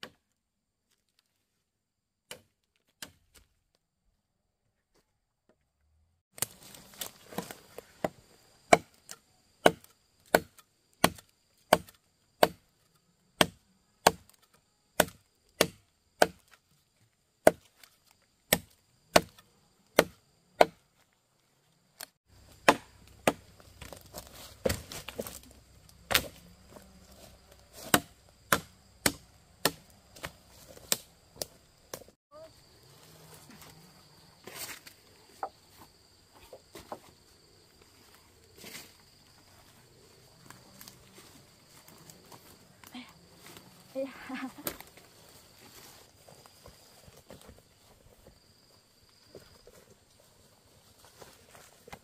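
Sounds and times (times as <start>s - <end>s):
blade chopping firewood: 0.0s - 0.2s, 2.2s - 3.5s, 6.3s - 21.1s, 22.0s - 32.1s.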